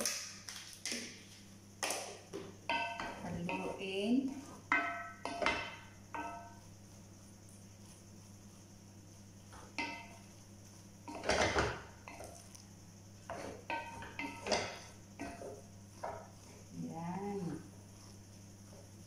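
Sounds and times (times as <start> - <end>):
steady low hum: 0.0 - 19.0
wooden spoon stirring rice in pot: 1.8 - 19.0
spoon clinking against pot: 4.7 - 6.6, 13.3 - 15.5
spoon scraping pot: 11.0 - 12.6, 13.2 - 16.7.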